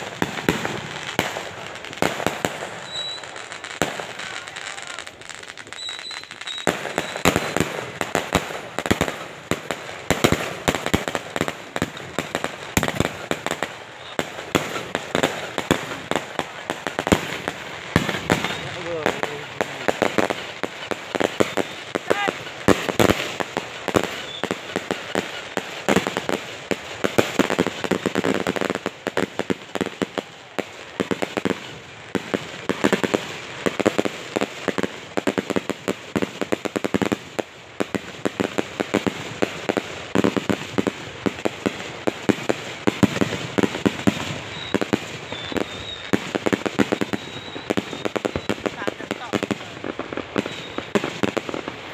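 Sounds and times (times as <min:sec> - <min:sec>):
firecrackers crackling: 0:00.0 - 0:51.9.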